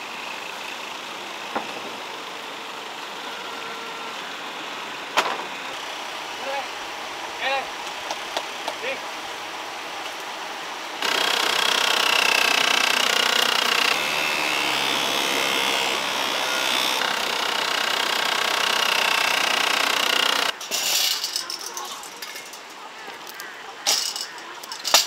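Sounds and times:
wavering high-pitched buzz: 0.0s - 7.2s, 11.0s - 21.8s.

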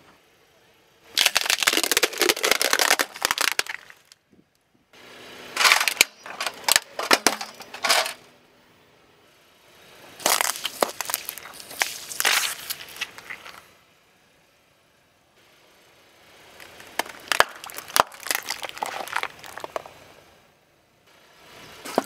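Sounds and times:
juice cartons crunching: 1.2s - 4.2s, 5.6s - 8.2s, 10.2s - 13.6s, 16.6s - 19.9s
plastic ball crackling and snapping: 1.2s - 4.2s, 10.2s - 13.6s, 16.6s - 19.9s
plastic scale cracking: 1.2s - 4.2s.

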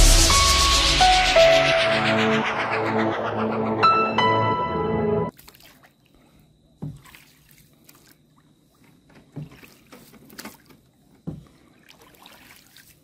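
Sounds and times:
water sloshing and trickling: 5.3s - 13.0s
soft knocks or splashes: 6.8s - 8.2s, 8.8s - 13.0s.

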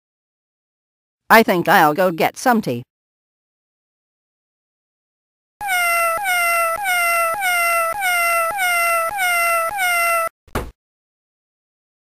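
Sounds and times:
cat meowing: 5.6s - 10.3s.

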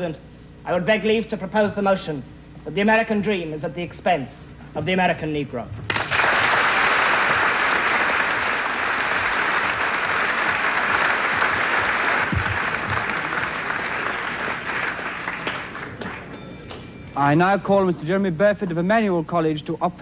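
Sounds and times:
audience applauding: 5.9s - 16.8s.

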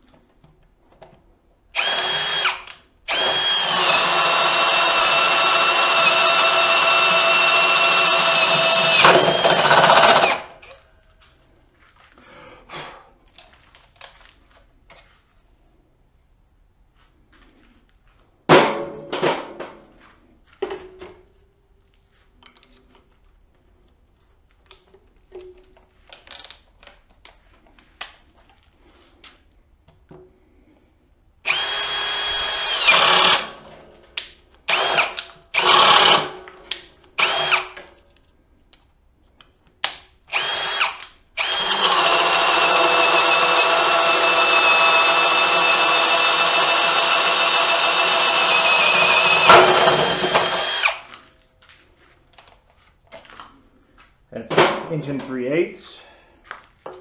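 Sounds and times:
drill motor whine: 1.8s - 10.4s, 31.5s - 33.5s, 34.7s - 36.2s, 37.2s - 37.6s, 40.3s - 51.1s.

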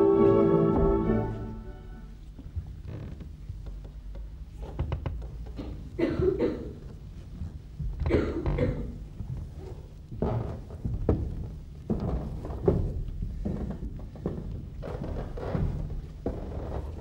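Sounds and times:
footsteps on stage boards: 0.0s - 17.0s
person coughing: 5.6s - 6.8s, 8.1s - 9.0s.

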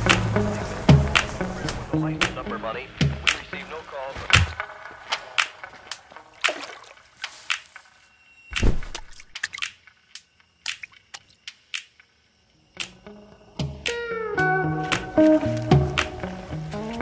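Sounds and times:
water splashing: 3.1s - 8.0s.

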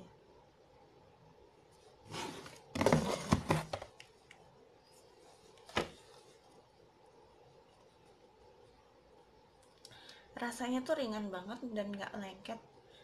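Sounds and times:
handling rustling and knocks: 2.0s - 4.0s, 5.0s - 6.5s.

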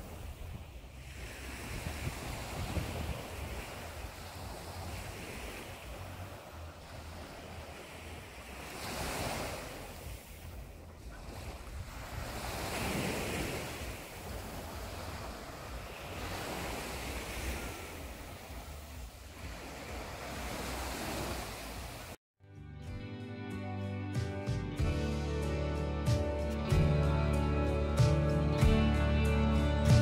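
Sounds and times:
waves breaking on beach: 0.0s - 22.2s
wind rumbling on microphone: 0.0s - 22.2s.

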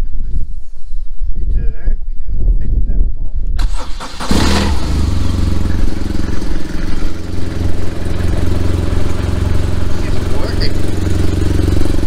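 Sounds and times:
motorcycle engine idling: 4.3s - 12.0s.

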